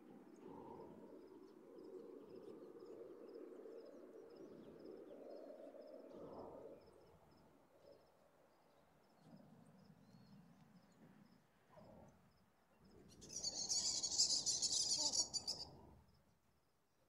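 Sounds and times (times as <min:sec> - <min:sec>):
crickets chirping: 0:12.8 - 0:16.2.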